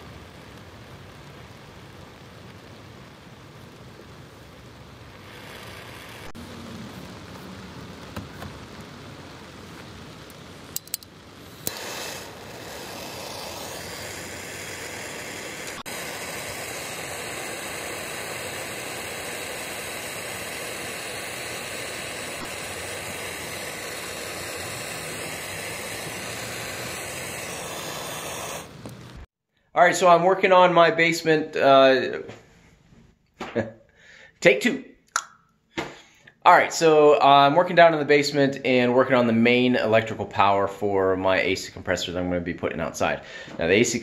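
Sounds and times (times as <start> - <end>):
gas torch hissing: 0.0 - 29.4
gas torch igniter clicks: 10.3 - 29.2.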